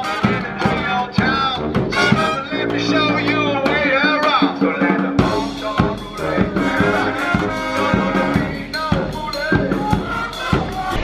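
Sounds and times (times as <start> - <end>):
snare drum beat: 0.0 - 3.2
saxophone: 0.0 - 3.9, 5.2 - 11.0
bass drum beat: 0.0 - 11.0
trombones: 0.0 - 11.0
trumpets: 0.0 - 11.0.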